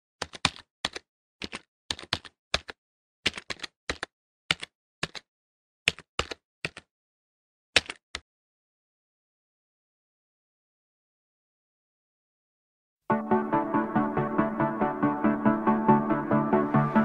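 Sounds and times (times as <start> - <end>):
computer keyboard keystrokes: 0.2 - 5.3, 5.9 - 6.9, 7.8 - 8.2.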